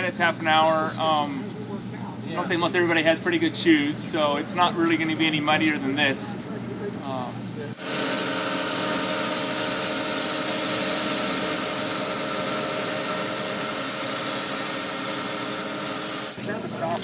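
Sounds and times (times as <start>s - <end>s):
motor humming: 0.0s - 17.0s
bandsaw mill cutting log: 7.7s - 17.0s.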